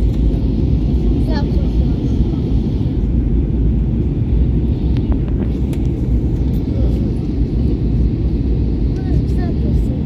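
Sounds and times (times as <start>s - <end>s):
deep rumble of airflow and engines: 0.0s - 10.0s.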